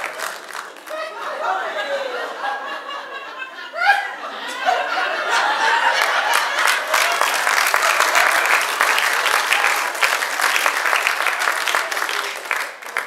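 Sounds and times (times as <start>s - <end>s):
audience applauding: 0.0s - 1.2s, 5.3s - 13.0s.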